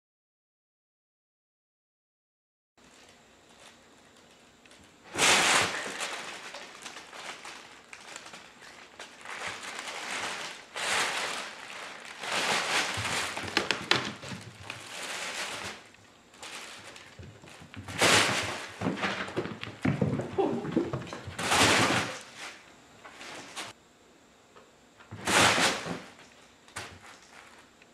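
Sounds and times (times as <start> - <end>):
fabric tunnels rustling and crinkling: 5.1 - 19.3.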